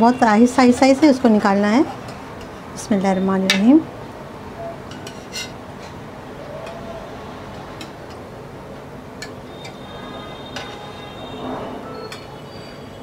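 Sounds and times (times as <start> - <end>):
metal spatula tapping frying pan: 3.5 - 3.8.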